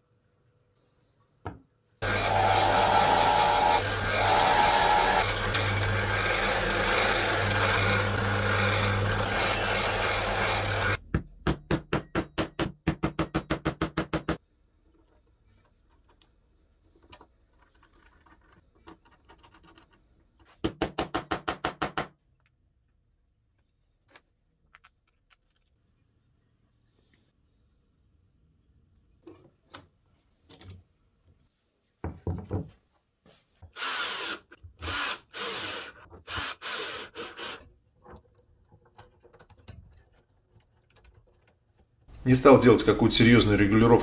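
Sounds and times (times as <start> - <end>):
drill press boring into wood: 2.0 - 11.0, 33.8 - 37.7.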